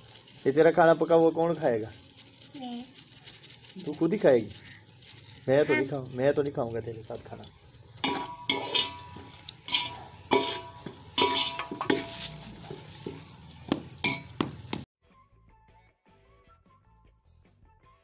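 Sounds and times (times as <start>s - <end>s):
knife clinking on steel bowl: 8.0s - 13.2s, 14.0s - 14.4s.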